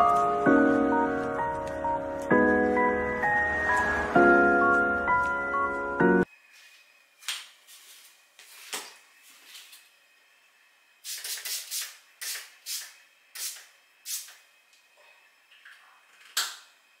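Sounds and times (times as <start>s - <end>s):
short hissy spray bursts: 11.0s - 14.4s.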